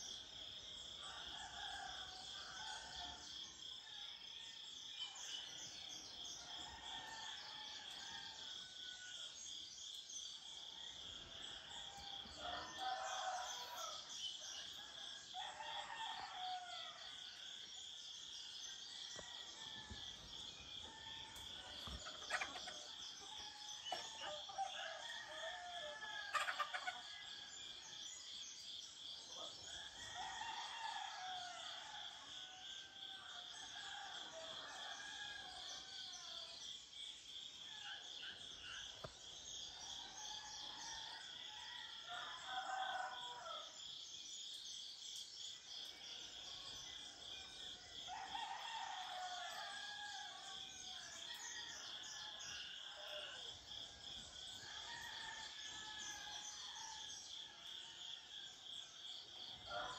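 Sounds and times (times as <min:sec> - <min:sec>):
roosters crowing: 0:23.5 - 0:27.0.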